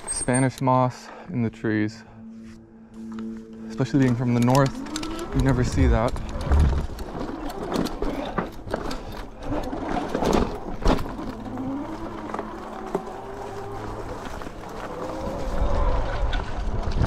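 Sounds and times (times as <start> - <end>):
hub motor whine: 2.8 - 17.0
bike rattling over rough ground: 3.7 - 17.0.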